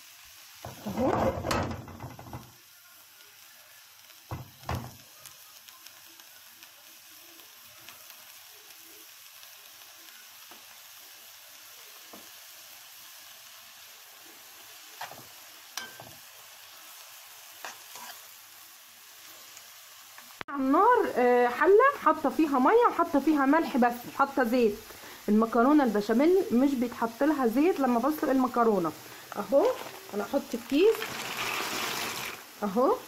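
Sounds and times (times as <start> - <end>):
onions sizzling in a pan: 0.0 - 33.0
spoon knocking against pan: 0.7 - 2.5.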